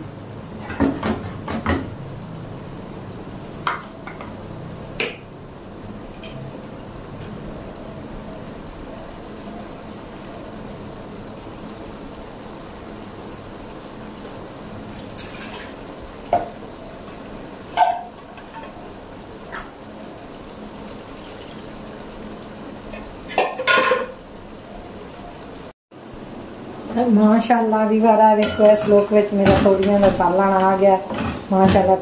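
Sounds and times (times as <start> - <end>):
vegetables sizzling in a pot: 0.0 - 32.0
kitchenware clinking: 17.7 - 18.8, 22.9 - 24.2, 28.4 - 32.0.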